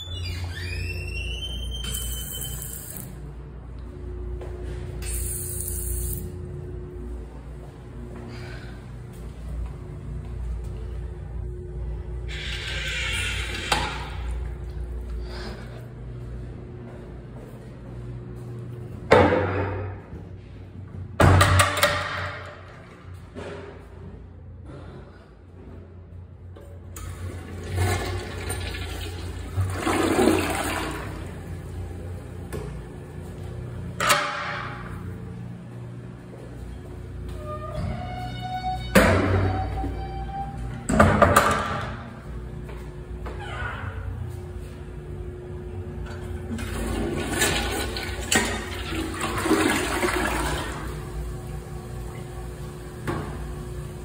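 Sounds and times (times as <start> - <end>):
toilet flushing: 27.0 - 32.0, 46.2 - 54.0.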